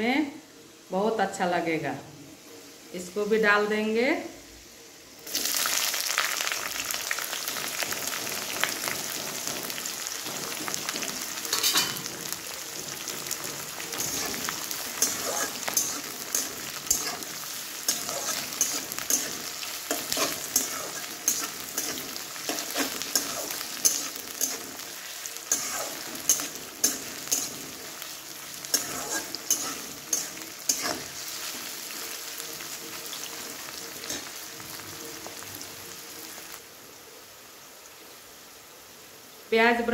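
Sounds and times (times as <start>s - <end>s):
onions sizzling in hot oil: 0.0s - 39.9s
metal spatula scraping a pan: 7.5s - 34.4s.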